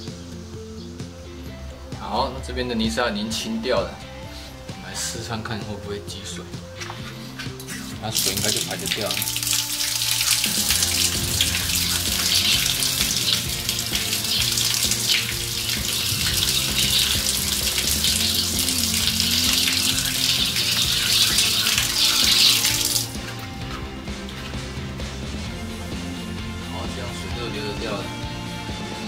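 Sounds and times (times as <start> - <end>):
water splashing onto tiled floor: 6.8 - 25.6.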